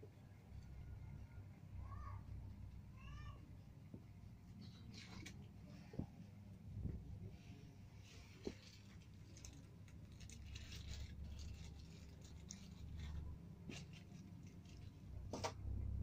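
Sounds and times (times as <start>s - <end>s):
hands scratching and rustling: 8.0s - 15.2s.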